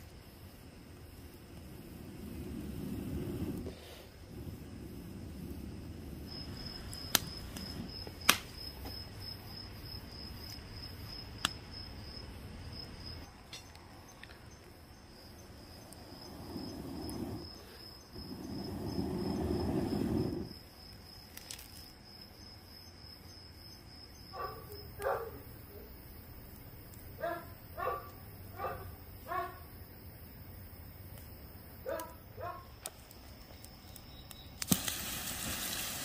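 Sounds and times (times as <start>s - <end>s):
campfire crackling and popping: 0.0s - 11.7s, 13.2s - 22.0s, 30.9s - 36.0s
crickets chirping: 0.0s - 36.0s.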